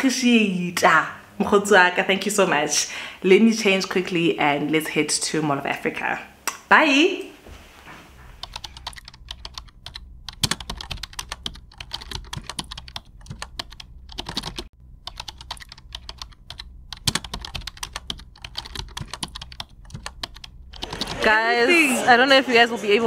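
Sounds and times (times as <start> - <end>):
low hum: 8.0 - 21.2.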